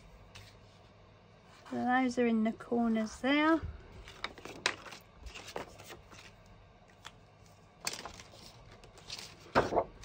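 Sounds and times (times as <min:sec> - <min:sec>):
paper rustling and sliding: 0:00.3 - 0:00.9, 0:04.0 - 0:06.4, 0:07.4 - 0:10.0.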